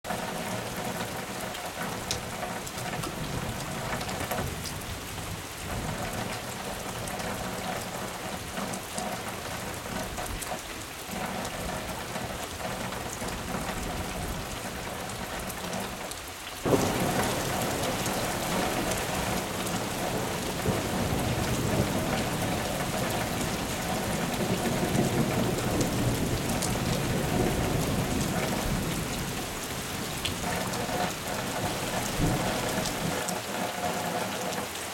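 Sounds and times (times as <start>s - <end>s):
rain on gravel: 0.0s - 34.9s
water running off ground: 16.6s - 33.8s.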